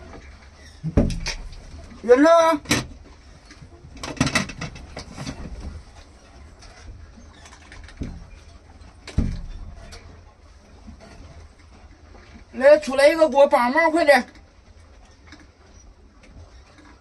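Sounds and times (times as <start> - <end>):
knocks: 9.1 - 9.8.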